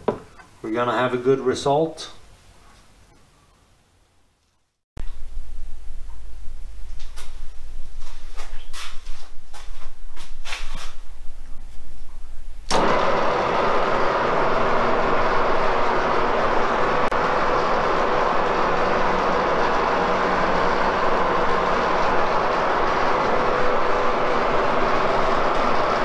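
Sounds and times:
milling machine running: 12.7s - 26.0s.

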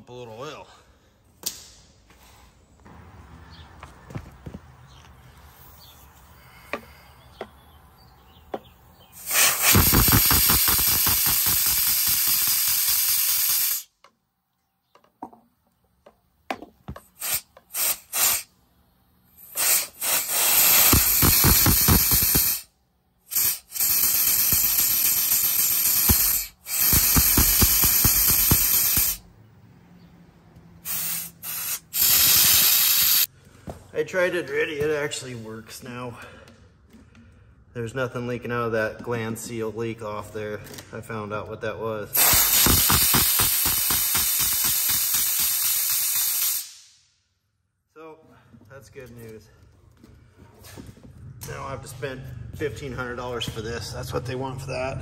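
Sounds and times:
air motor hissing and pulsing: 9.2s - 13.8s, 19.4s - 22.7s, 23.3s - 29.2s, 30.8s - 33.3s, 42.2s - 46.8s.

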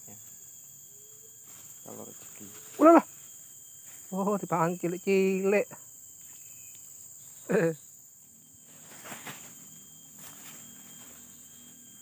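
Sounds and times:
crickets chirping: 0.0s - 12.0s
faint rustles: 8.6s - 11.4s.

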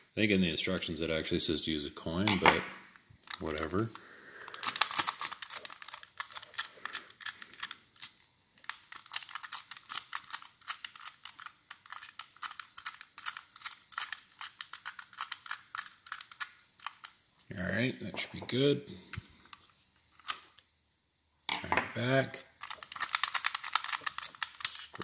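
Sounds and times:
padlock dials clicking: 4.5s - 17.2s, 22.6s - 24.8s.

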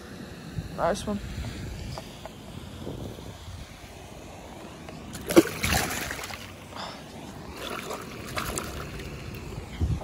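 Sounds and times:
water sloshing: 5.0s - 9.6s
fish splashing into water: 5.1s - 6.6s, 7.5s - 9.4s.

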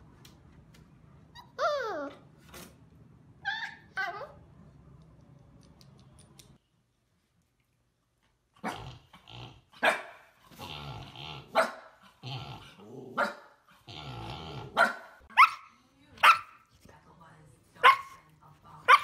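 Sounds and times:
dog barking and growling: 8.5s - 16.7s, 17.8s - 18.2s.

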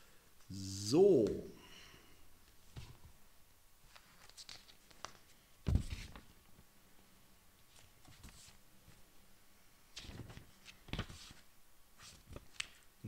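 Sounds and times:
pages rustling: 3.8s - 6.3s, 7.7s - 9.0s, 10.0s - 12.9s.

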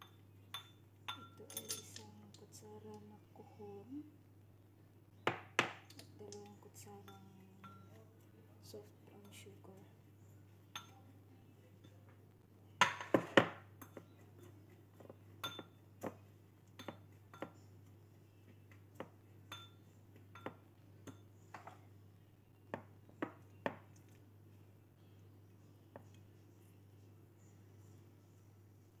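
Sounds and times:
spoon clinking against ceramic bowl: 0.0s - 2.1s, 7.0s - 8.0s, 10.7s - 11.0s, 13.8s - 14.6s, 15.4s - 15.8s, 16.7s - 17.6s, 19.5s - 21.8s.

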